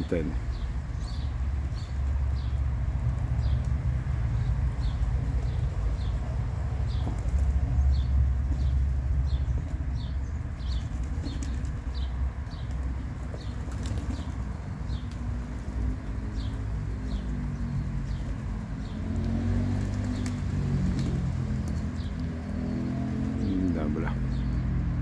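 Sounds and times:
pigeons cooing: 0:04.8 - 0:24.7
pigeon wings flapping: 0:06.8 - 0:09.8, 0:10.6 - 0:23.4.

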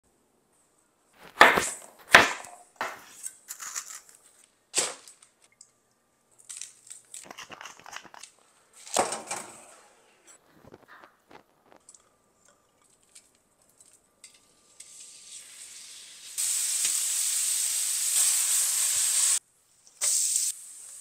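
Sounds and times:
soft crinkling and scraping: 0:06.3 - 0:14.5.

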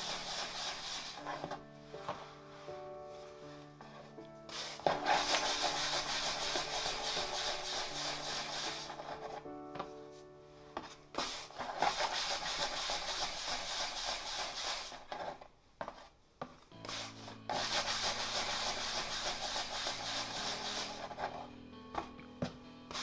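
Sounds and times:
dry scraping on surface: 0:00.0 - 0:09.4, 0:16.8 - 0:21.5
soft background music: 0:00.0 - 0:14.6, 0:16.7 - 0:23.0.

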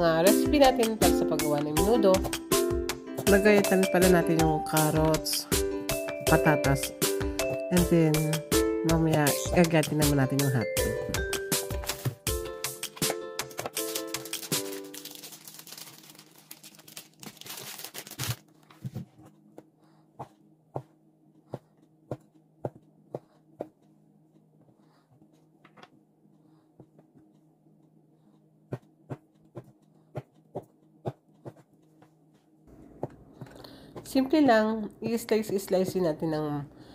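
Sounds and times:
plastic package crinkling: 0:13.5 - 0:18.8.

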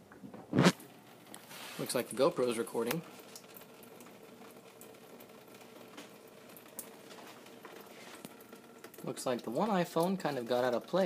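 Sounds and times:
water dripping and trickling: 0:00.9 - 0:11.0.

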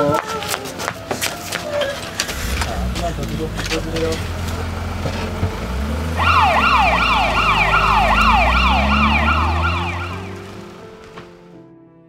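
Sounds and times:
low engine rumble: 0:01.9 - 0:11.2
ambulance siren yelping: 0:05.8 - 0:10.6.

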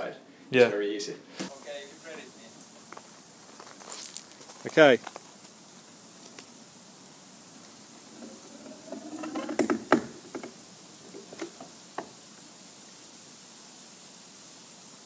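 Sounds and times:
hatch door creaking scrape: 0:08.1 - 0:12.1.

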